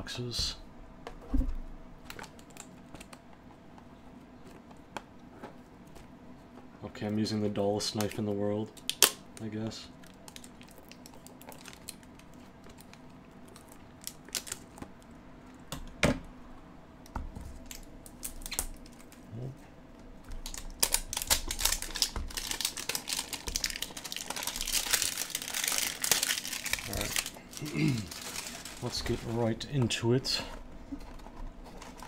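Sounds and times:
plastic wrap crinkling: 10.0s - 15.0s, 20.3s - 29.7s.

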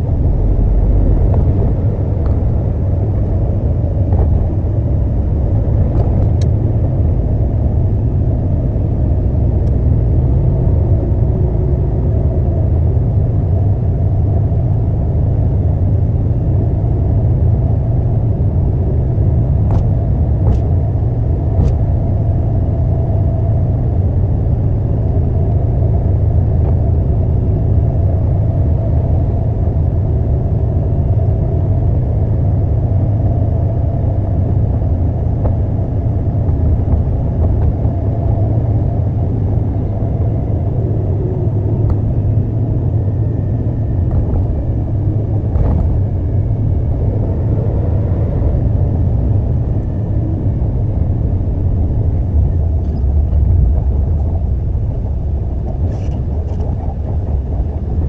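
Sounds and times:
diesel truck engine rumbling: 0.0s - 14.2s, 31.6s - 58.0s.

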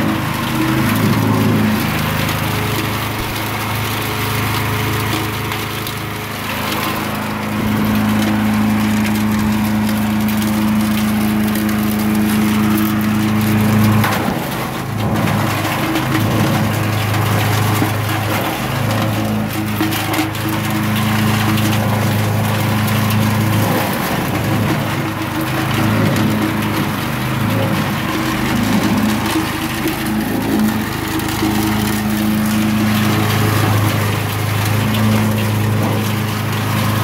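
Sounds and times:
wood chipper engine running: 0.0s - 37.0s
wood crackling and splintering: 0.0s - 37.0s.

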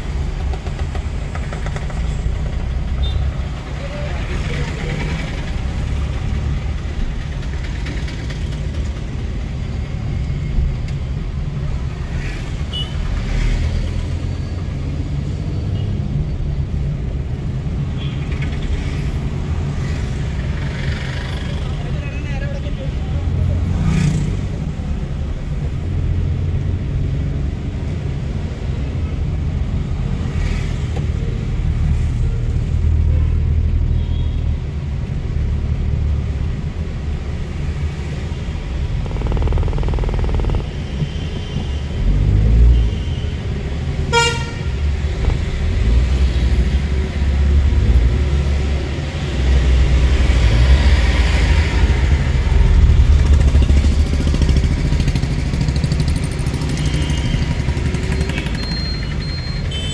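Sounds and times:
car engine and tyres rumbling: 0.0s - 59.9s
vehicle horn toot: 44.1s - 44.8s.

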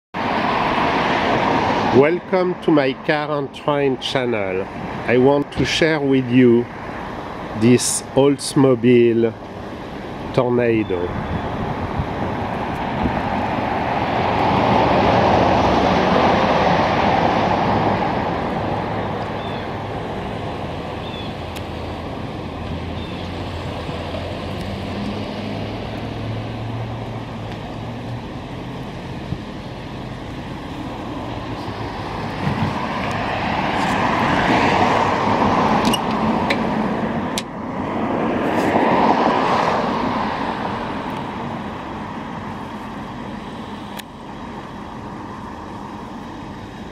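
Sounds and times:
vehicles passing: 0.2s - 46.9s.

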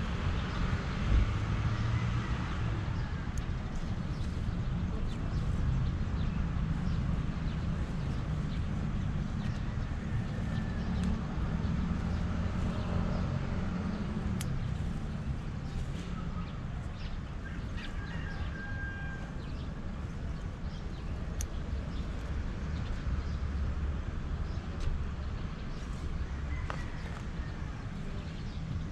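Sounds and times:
road traffic rumble: 0.0s - 28.9s
birds chirping: 3.0s - 28.9s
scissors snipping stems: 14.2s - 14.8s.

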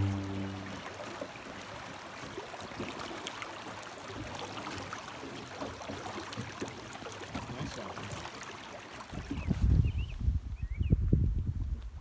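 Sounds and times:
running water babbling: 0.0s - 9.5s.

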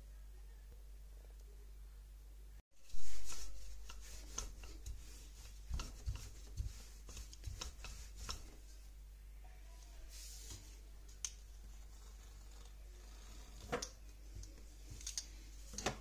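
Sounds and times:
rolling pin rolling dough: 2.8s - 8.9s, 11.4s - 16.0s.

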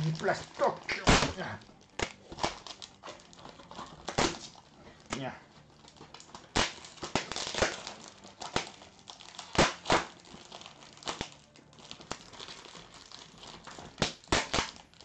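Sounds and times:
plastic packaging crinkling and tearing: 0.0s - 15.0s.

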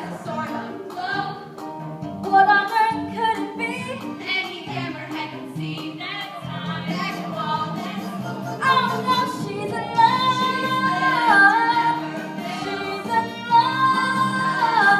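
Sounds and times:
group singing a show tune: 0.0s - 1.5s, 4.6s - 14.9s
musical accompaniment: 0.0s - 14.9s.

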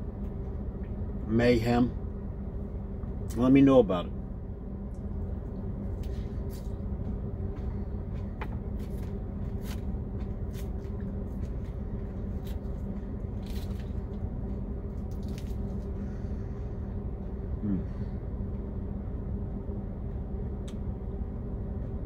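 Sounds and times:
steady low hum: 0.0s - 22.0s
chewing crisp lettuce: 10.5s - 16.0s.

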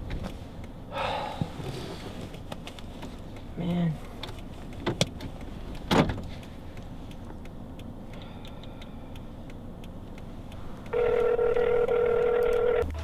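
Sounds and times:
low hum inside car: 0.0s - 13.0s
telephone ringback tone: 10.9s - 12.8s.

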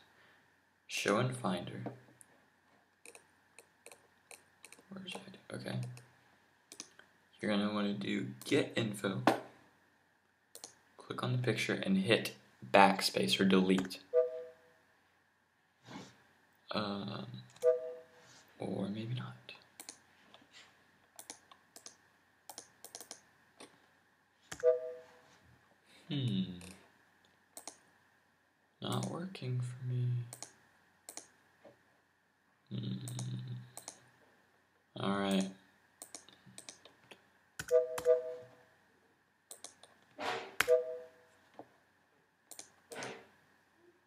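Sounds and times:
keyboard and mouse clicking: 3.0s - 5.2s, 6.7s - 7.0s, 10.5s - 10.8s, 19.8s - 20.0s, 21.2s - 23.7s, 27.6s - 27.8s, 30.3s - 31.3s, 33.0s - 34.0s, 35.3s - 37.0s, 39.5s - 40.0s, 42.5s - 43.1s
two-note alert beep: 14.2s - 14.6s, 17.6s - 18.1s, 24.6s - 25.1s, 37.7s - 38.5s, 40.7s - 41.2s.

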